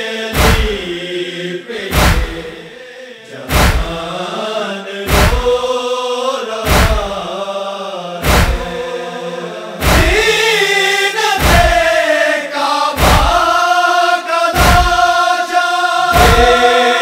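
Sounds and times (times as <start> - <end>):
men chanting a lament: 0.0 - 17.0
chest-beating thuds: 0.4 - 0.9, 1.9 - 2.6, 3.5 - 4.1, 5.1 - 5.7, 6.7 - 7.2, 8.2 - 8.8, 9.8 - 10.3, 11.4 - 11.9, 13.0 - 13.5, 14.6 - 15.1, 16.2 - 17.0.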